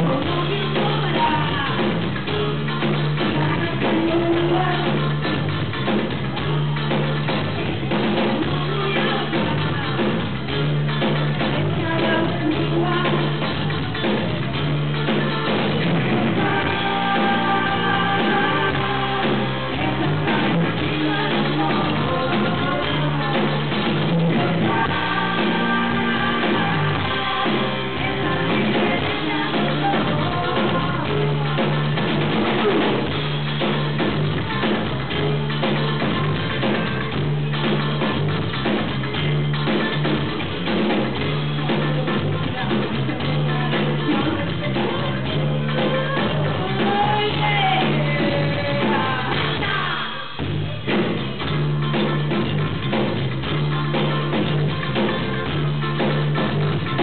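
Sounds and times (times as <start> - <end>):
women singing: 0.0 - 5.5, 7.6 - 10.6, 11.4 - 14.4, 15.9 - 33.0, 41.5 - 50.3
drum kit: 0.0 - 57.0
electric guitar: 0.0 - 57.0.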